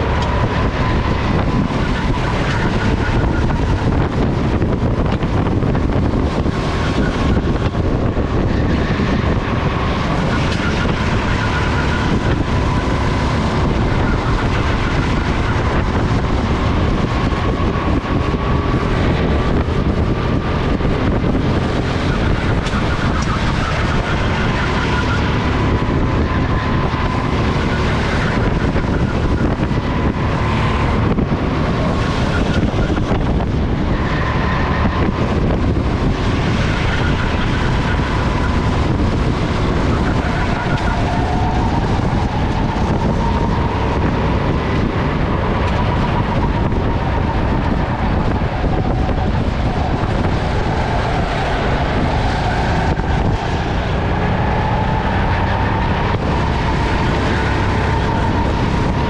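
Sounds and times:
go-kart engine revving: 0:00.0 - 0:59.0
wind noise on microphone: 0:00.0 - 0:59.0.

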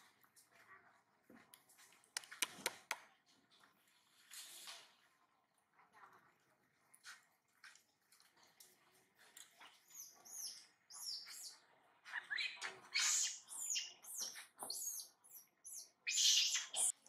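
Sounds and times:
infant monkey squealing: 0:12.2 - 0:16.9.

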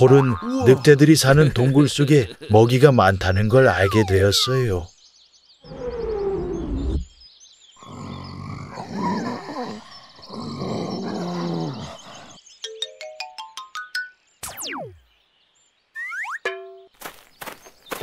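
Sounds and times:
cartoon animal growling: 0:07.8 - 0:12.3.

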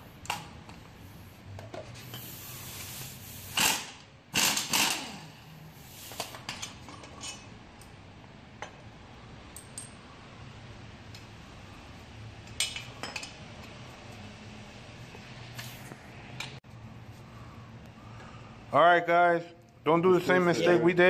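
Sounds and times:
pneumatic impact wrench bursts: 0:02.2 - 0:06.2.

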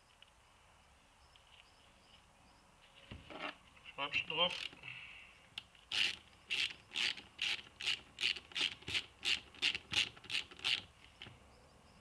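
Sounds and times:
ratchet wrench clicking: 0:05.9 - 0:10.9.

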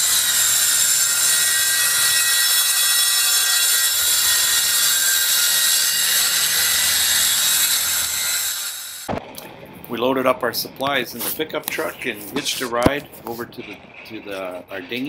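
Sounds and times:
circular saw cutting plywood: 0:00.0 - 0:09.1.

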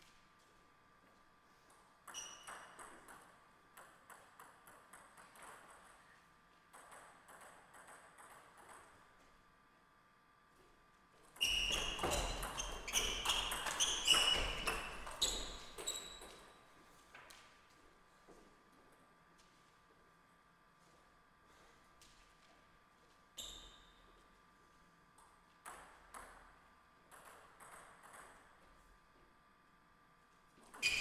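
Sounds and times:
table tennis ball bouncing: 0:02.0 - 0:05.9, 0:06.7 - 0:09.0, 0:11.4 - 0:16.5, 0:25.2 - 0:28.6
table tennis rally ball strikes: 0:11.4 - 0:15.9.

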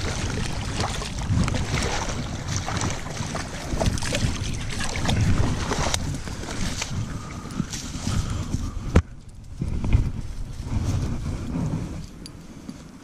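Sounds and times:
fish splashing: 0:00.0 - 0:08.3
wind buffeting microphone: 0:00.0 - 0:13.0
dry grass rustling: 0:04.5 - 0:13.0.

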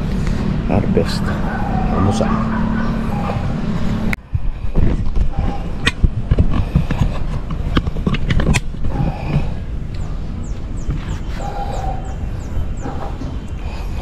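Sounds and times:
sharp clicks and knocks: 0:04.8 - 0:10.0.

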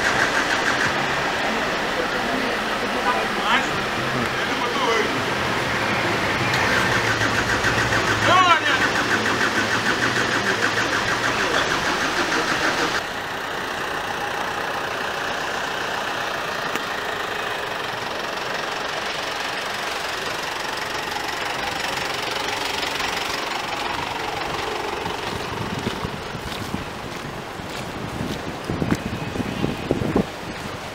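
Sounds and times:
starter motor cranking engine: 0:00.0 - 0:01.4, 0:06.4 - 0:26.6
steady rushing noise: 0:00.0 - 0:30.9.

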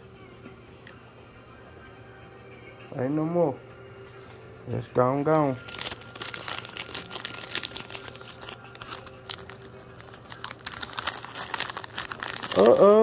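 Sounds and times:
plastic wrapper crinkling: 0:05.5 - 0:13.0.

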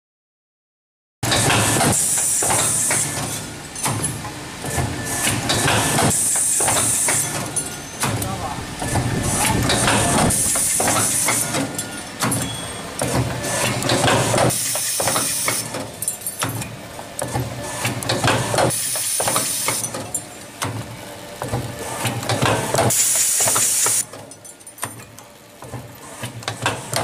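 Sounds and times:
pneumatic air hiss: 0:01.7 - 0:03.4, 0:05.1 - 0:07.4, 0:09.2 - 0:11.7, 0:14.4 - 0:15.8, 0:18.7 - 0:20.0, 0:22.9 - 0:24.0.

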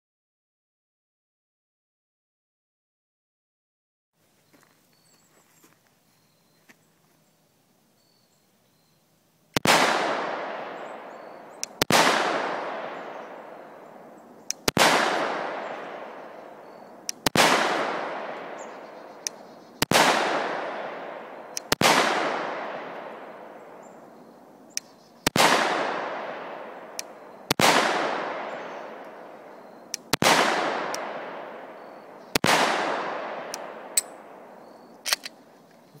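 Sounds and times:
pistol shots with echo: 0:09.6 - 0:23.9, 0:25.2 - 0:35.3
faint sharp clicks: 0:11.5 - 0:11.9, 0:14.4 - 0:14.8, 0:17.0 - 0:17.4, 0:19.2 - 0:19.9, 0:21.5 - 0:21.8, 0:24.7 - 0:25.4, 0:26.9 - 0:27.6, 0:29.8 - 0:30.2.

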